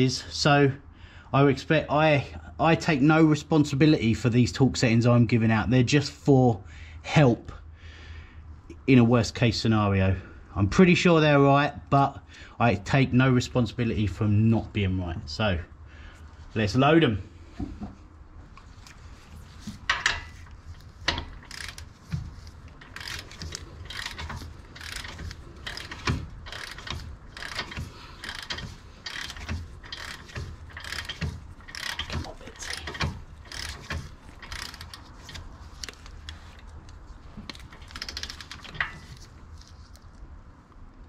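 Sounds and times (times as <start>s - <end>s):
hand ratchet clicking: 19.9s - 36.8s, 37.4s - 39.3s.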